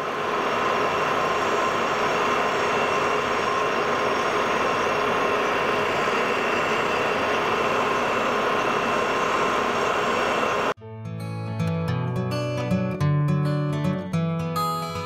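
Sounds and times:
grinder motor whining: 0:00.0 - 0:10.8.

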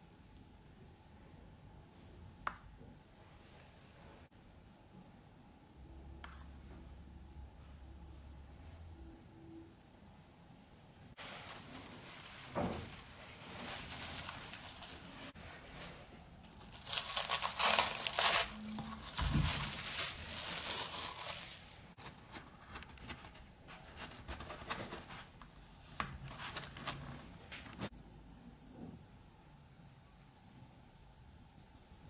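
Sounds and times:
cling film crinkling: 0:11.2 - 0:15.3, 0:16.4 - 0:22.0.

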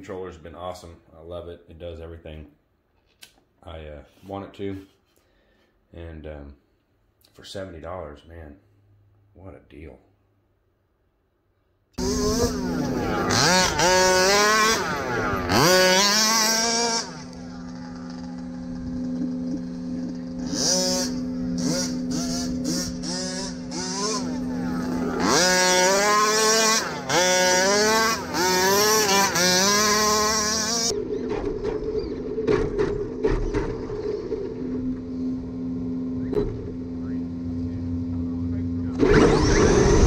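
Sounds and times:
toy car motor whining: 0:12.0 - 0:31.3, 0:39.0 - 0:40.0.

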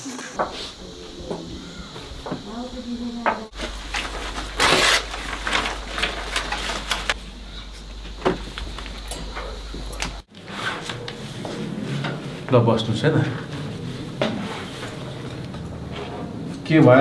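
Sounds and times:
steady low hum: 0:00.0 - 0:17.0
paper rustling: 0:03.5 - 0:07.2.

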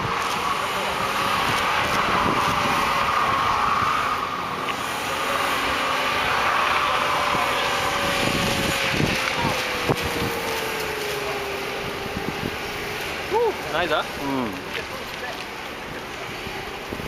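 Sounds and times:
tyres squealing: 0:00.0 - 0:16.8
car engine at high revs: 0:00.0 - 0:17.0.

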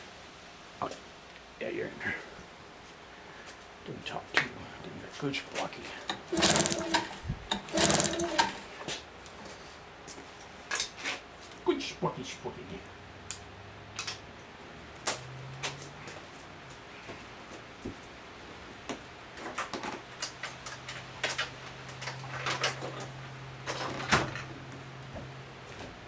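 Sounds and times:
tools clicking and knocking: 0:06.1 - 0:08.6.

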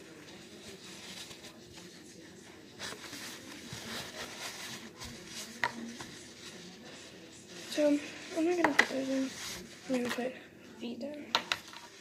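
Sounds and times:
paper towel rustling: 0:00.0 - 0:10.4.

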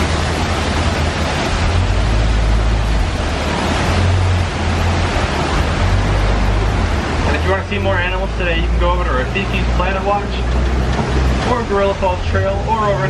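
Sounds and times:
truck engine rumble: 0:00.0 - 0:13.0.

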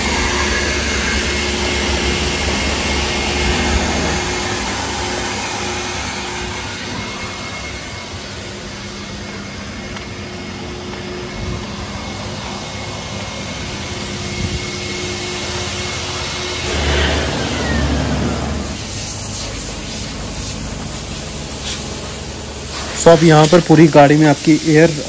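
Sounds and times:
deep rumble: 0:00.0 - 0:09.6, 0:16.6 - 0:22.6
falling whine: 0:00.0 - 0:23.9
car wash motor hum: 0:00.0 - 0:25.0.

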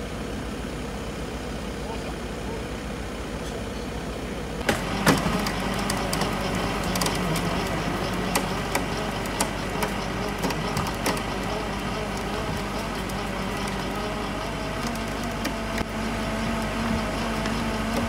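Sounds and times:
low hum: 0:00.0 - 0:18.0
sharp clicks and crackles: 0:04.6 - 0:18.0.

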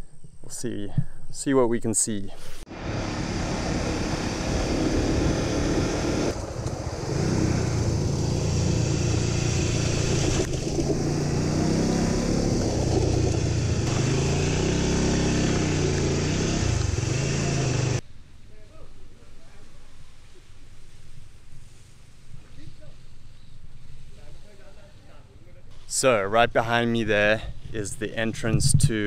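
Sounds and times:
motorcycle engine revving: 0:02.7 - 0:18.0.

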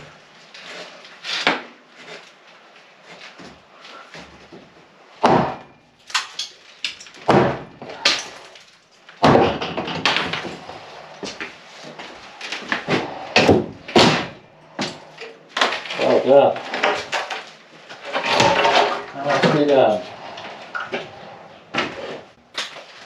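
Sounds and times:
clatter of wood and debris: 0:00.0 - 0:23.0
hammer banging on wood: 0:05.2 - 0:05.8, 0:07.2 - 0:08.4, 0:09.2 - 0:11.4, 0:12.6 - 0:15.9.

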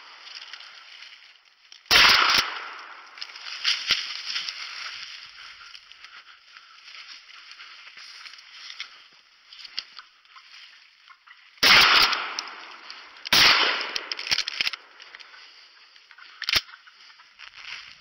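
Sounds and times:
shotgun shots: 0:01.9 - 0:03.0, 0:11.6 - 0:14.7
spent shell ejecting: 0:11.6 - 0:15.3.

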